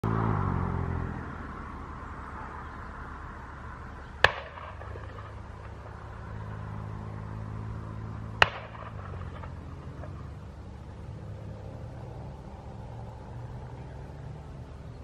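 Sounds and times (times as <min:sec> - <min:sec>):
paramotor engine droning: 0:00.0 - 0:15.0
sharp cracks: 0:04.2 - 0:06.9, 0:08.3 - 0:10.4.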